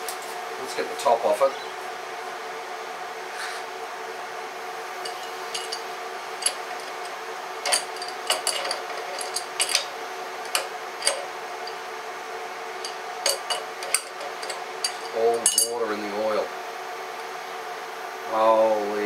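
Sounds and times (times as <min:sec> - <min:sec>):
steady hum: 0:00.0 - 0:19.0
metallic clicks and clinks: 0:05.1 - 0:09.9, 0:10.5 - 0:11.8, 0:12.8 - 0:15.8.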